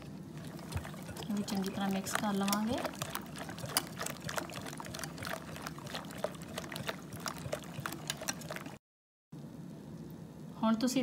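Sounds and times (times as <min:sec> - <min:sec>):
whisk beating batter in bowl: 0:00.4 - 0:08.8.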